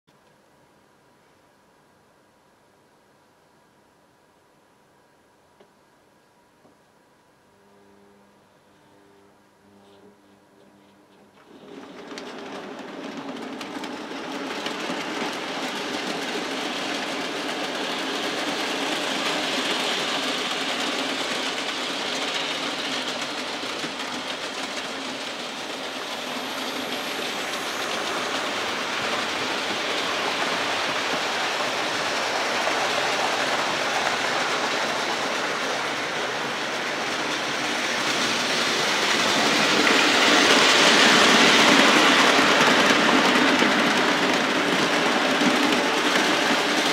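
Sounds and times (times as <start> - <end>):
train wheels over rails: 11.1 - 46.9
model train motor whirr: 11.4 - 42.9.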